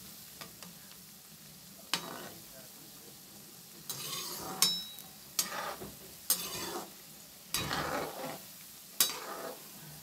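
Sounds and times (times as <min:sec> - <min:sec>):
pakoras sizzling in hot oil: 0:00.0 - 0:10.0
metal spoon clinking against pan: 0:03.9 - 0:06.8, 0:09.0 - 0:09.5.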